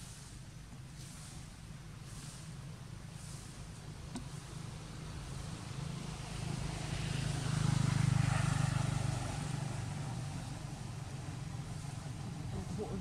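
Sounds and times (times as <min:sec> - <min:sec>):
passing vehicle engine hum: 0:04.3 - 0:13.0.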